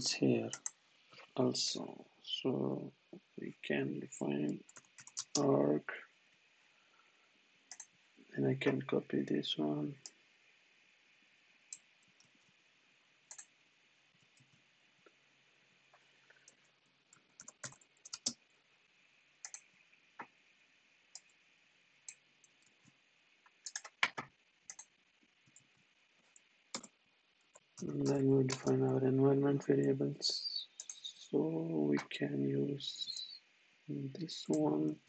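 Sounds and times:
mouse clicks: 19.4 - 19.6, 23.7 - 24.9
keyboard keystrokes: 23.6 - 24.9, 28.5 - 28.7.

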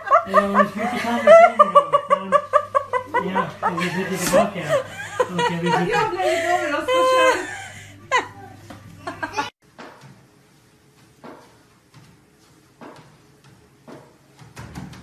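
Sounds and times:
bursts of laughter: 0.0 - 8.4.

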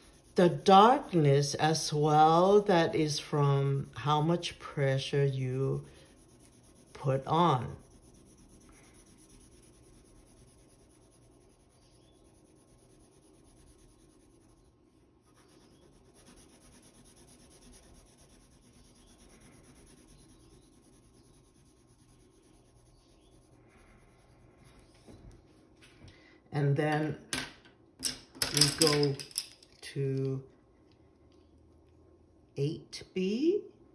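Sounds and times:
pencil scratching on paper: 0.0 - 2.7, 3.4 - 25.2.

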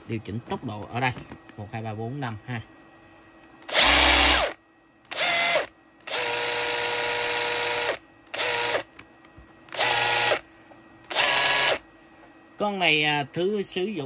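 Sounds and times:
rotary hammer motor whine: 3.6 - 9.0, 9.7 - 11.9.

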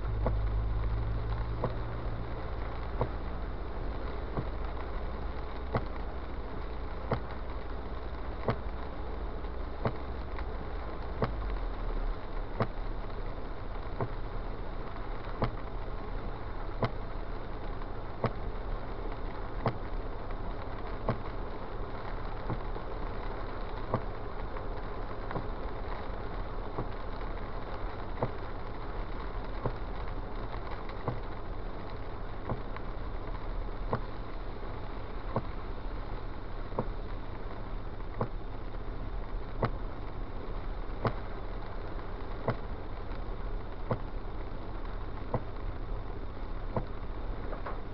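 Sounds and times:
car engine and wet tyres rumble: 0.0 - 47.9
windshield wipers clicking: 14.0 - 14.2, 28.1 - 28.8, 35.3 - 35.6, 36.8 - 37.0, 38.2 - 38.4, 39.6 - 39.8, 46.7 - 47.9.

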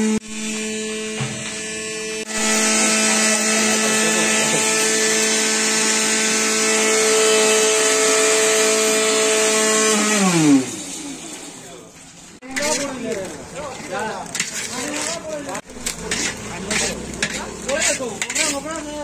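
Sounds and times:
mixer grinder motor running: 0.0 - 11.6.

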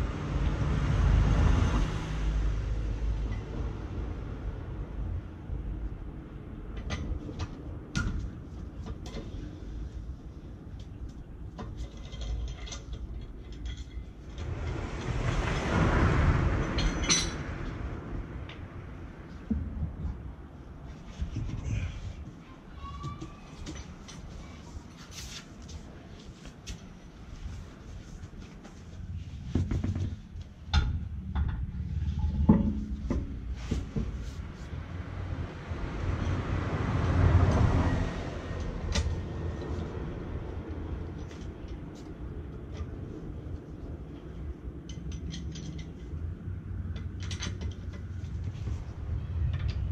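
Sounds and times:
rushing noise: 14.2 - 19.4
low steady rumble: 27.3 - 49.9.

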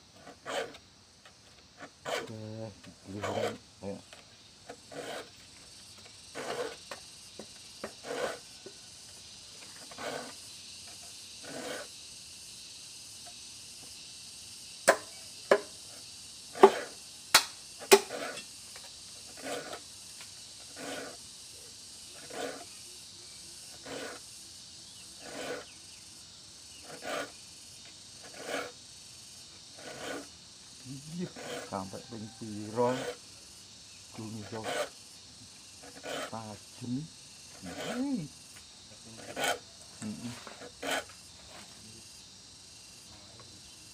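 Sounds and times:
file rasping on saw teeth: 0.2 - 0.8, 1.8 - 4.0, 4.7 - 5.4, 6.2 - 8.8, 9.8 - 11.9, 14.9 - 17.0, 17.8 - 18.5, 19.2 - 19.9, 20.6 - 21.2, 22.1 - 22.8, 23.7 - 24.3, 25.2 - 25.8, 26.7 - 27.4, 28.2 - 28.8, 29.7 - 33.2, 34.1 - 35.0, 35.8 - 38.3, 39.2 - 41.7.

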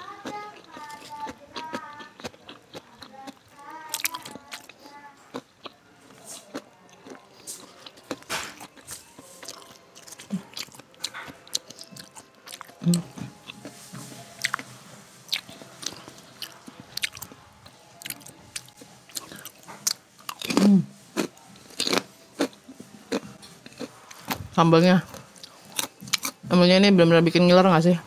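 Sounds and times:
chewing and crunching food: 0.0 - 26.6.

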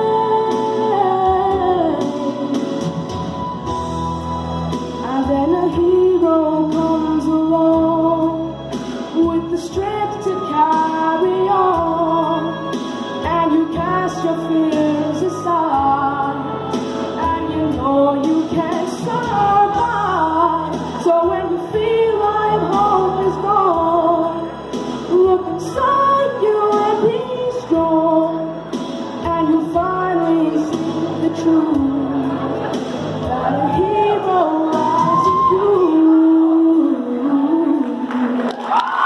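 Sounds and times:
person singing: 0.0 - 3.2, 4.9 - 38.8
pop ballad backing track: 0.0 - 39.0.

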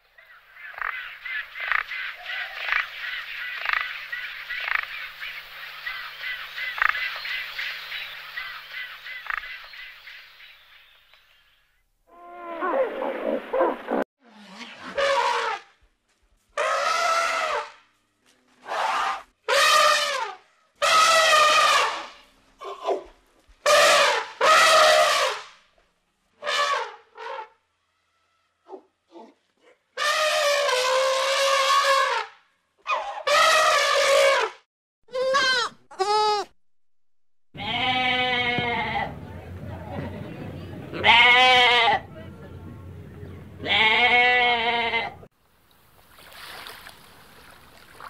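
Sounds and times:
birds chirping: 0.2 - 11.9, 42.0 - 43.9.

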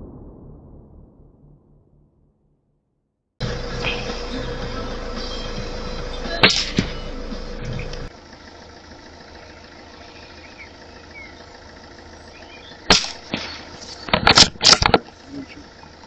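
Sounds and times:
rifle shots: 12.9 - 13.7.

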